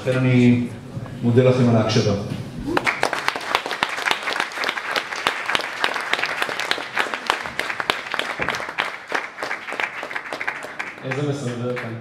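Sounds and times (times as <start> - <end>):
audience applauding: 2.6 - 12.0.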